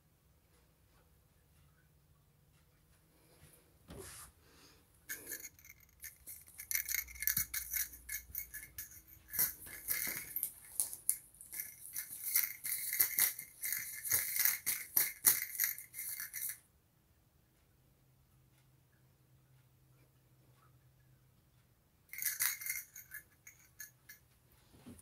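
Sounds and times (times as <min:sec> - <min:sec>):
toy ball rattling: 0:05.0 - 0:16.6, 0:22.1 - 0:24.2.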